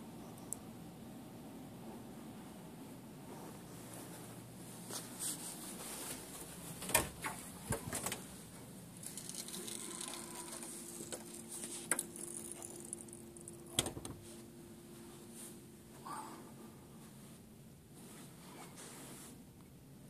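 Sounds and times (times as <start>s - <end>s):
faint steady hum: 0.0s - 20.0s
faint rustle: 14.2s - 19.4s.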